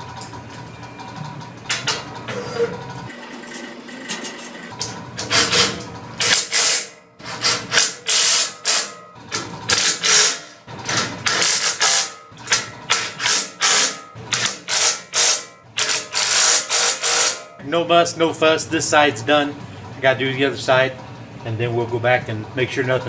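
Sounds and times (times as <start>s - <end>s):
impact driver hammering rattle: 5.2s - 17.6s.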